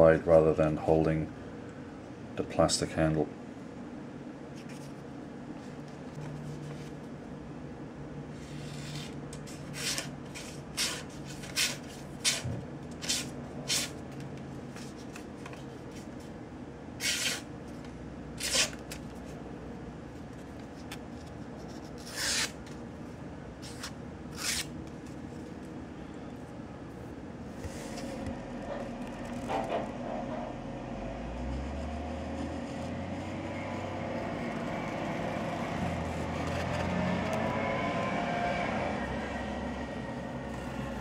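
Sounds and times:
steady low hum: 0:00.0 - 0:41.0
plastic knife scraping and clicking: 0:18.4 - 0:18.8, 0:21.7 - 0:22.7, 0:23.6 - 0:24.7.

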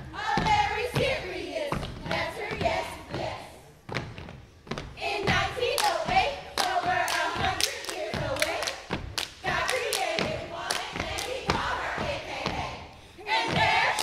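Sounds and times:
group chanting: 0:09.4 - 0:14.0.

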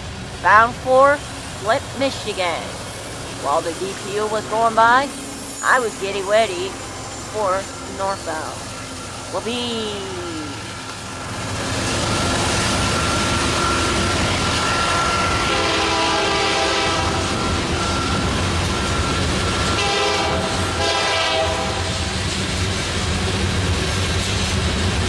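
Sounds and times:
freight cars rumbling on rails: 0:00.0 - 0:25.0
diesel locomotive horn blasts: 0:13.0 - 0:18.3, 0:19.0 - 0:22.1.

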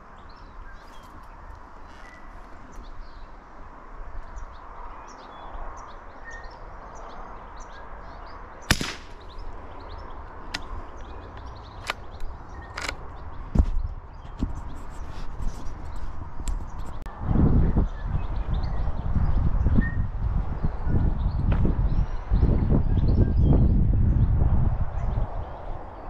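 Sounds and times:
small birds chirping: 0:00.0 - 0:17.1
sharp crack: 0:08.7 - 0:09.6.

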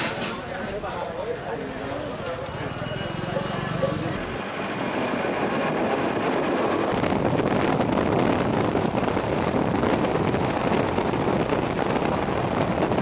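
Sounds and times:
car road and wind noise: 0:04.0 - 0:13.0
wind buffeting microphone: 0:04.2 - 0:13.0.

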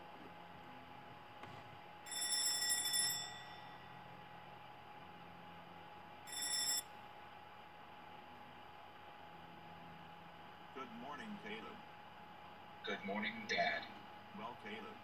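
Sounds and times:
cartoon alarm clock ringing: 0:02.1 - 0:03.9, 0:06.3 - 0:06.9.

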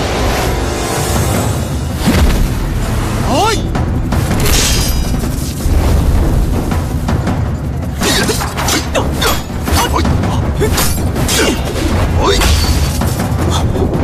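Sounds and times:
low rumbling score: 0:00.0 - 0:14.0
weapons clashing: 0:04.2 - 0:05.6, 0:08.0 - 0:13.7.

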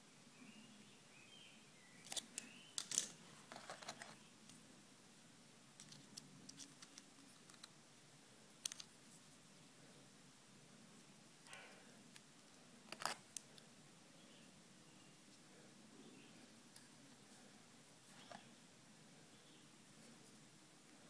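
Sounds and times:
pliers clicking and scraping wire: 0:02.0 - 0:04.6, 0:08.6 - 0:08.9, 0:12.9 - 0:13.5.

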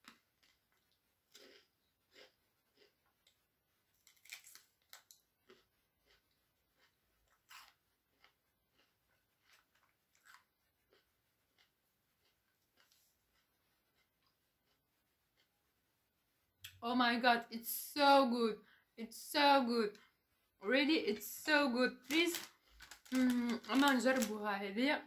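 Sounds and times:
crunching and chewing: 0:00.0 - 0:15.7, 0:22.0 - 0:24.4.

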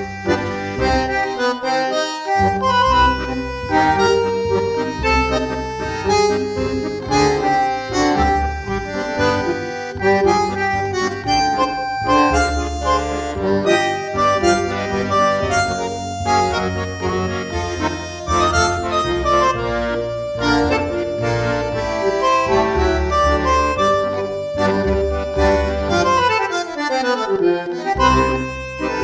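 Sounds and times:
instrumental music with reedy notes: 0:00.0 - 0:29.0.

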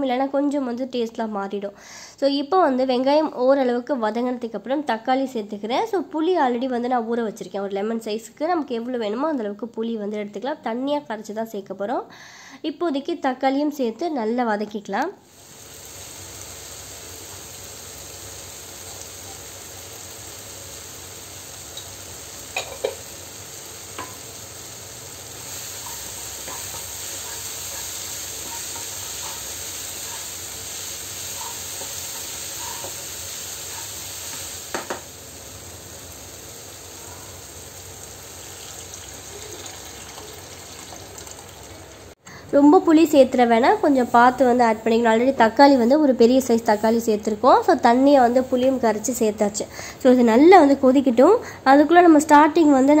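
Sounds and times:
onion and tomato sizzling in oil: 0:15.2 - 0:53.0.

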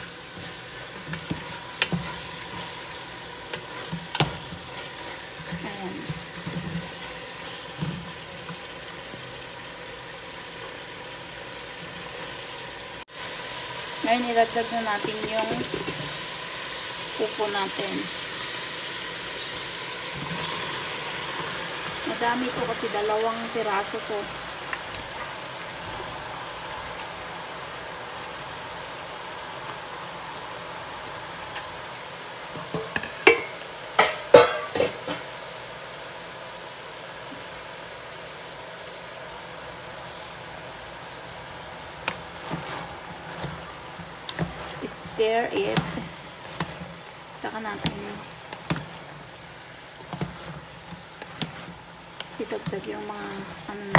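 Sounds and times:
food sizzling in oil: 0:00.0 - 0:53.9
wooden spatula scraping pot: 0:00.2 - 0:09.3, 0:42.1 - 0:53.9.

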